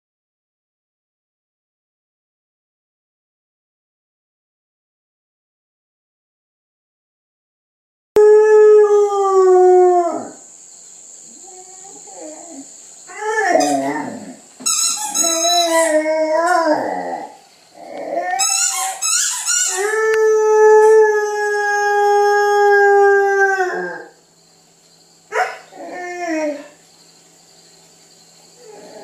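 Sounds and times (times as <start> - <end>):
dog howling: 8.2 - 10.4, 11.4 - 14.4, 15.1 - 18.8, 19.5 - 24.2, 25.3 - 26.8, 28.6 - 29.0.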